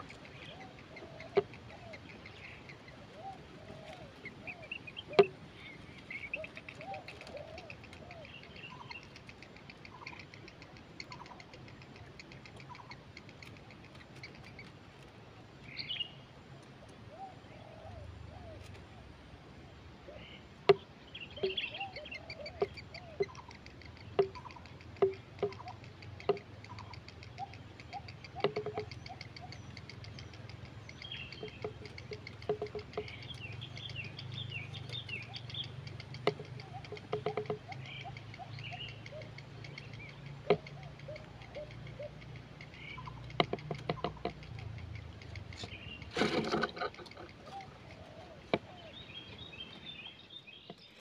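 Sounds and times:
steady low hum: 0.0 - 50.2
heron clicks and low notes: 0.0 - 51.0
high chirping: 21.1 - 46.3.

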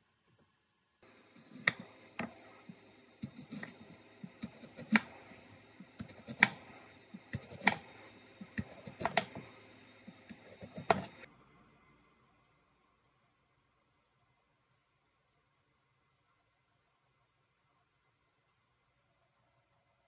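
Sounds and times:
knife slicing radish: 1.4 - 9.5, 10.1 - 11.3.

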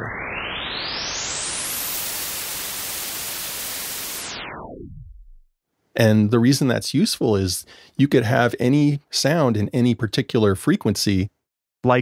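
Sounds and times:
white noise hiss: 1.1 - 4.4.

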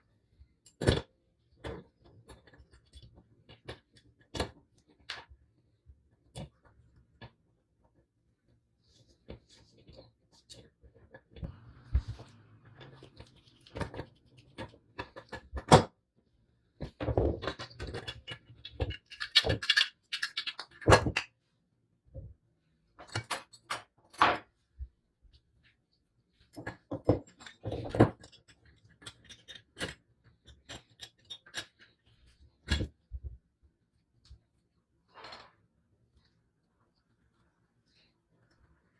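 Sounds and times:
metal scale parts clicking and clinking: 17.6 - 20.9.

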